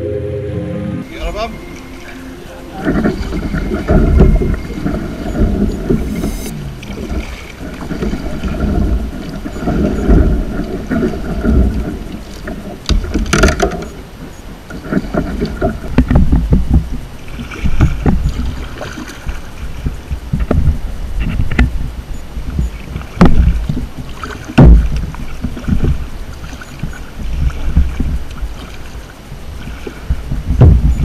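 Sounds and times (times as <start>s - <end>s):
water sloshing around kayak: 1.0s - 31.0s
wind buffeting microphone: 1.0s - 31.0s
knocks against kayak hull: 24.6s - 25.9s, 30.2s - 31.0s.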